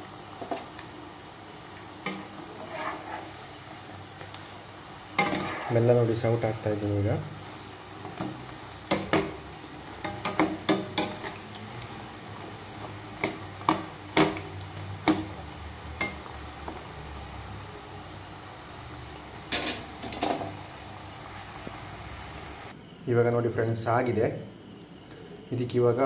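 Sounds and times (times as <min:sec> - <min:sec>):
oil sizzling: 0:00.0 - 0:22.8.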